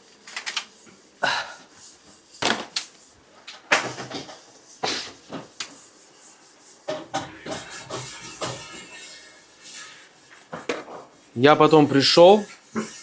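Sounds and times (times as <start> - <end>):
kitchen knocks and bangs: 6.9 - 8.8.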